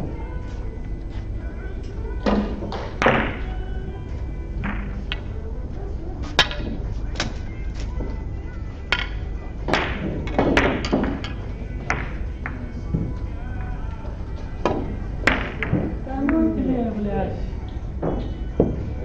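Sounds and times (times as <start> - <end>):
faint background music: 0.0 - 19.0
billiard balls clicking: 8.8 - 14.0, 14.6 - 16.6.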